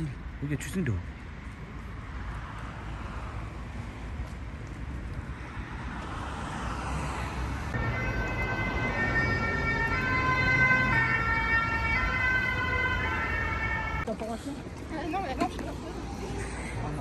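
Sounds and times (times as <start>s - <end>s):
road traffic rumble: 0.0s - 17.0s
emergency vehicle siren: 7.7s - 14.1s.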